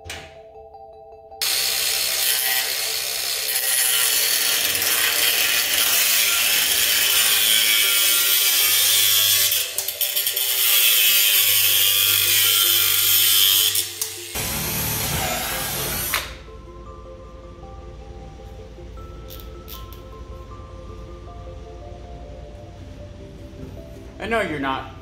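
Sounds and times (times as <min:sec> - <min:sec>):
angle grinder grinding steel: 0:01.4 - 0:16.2.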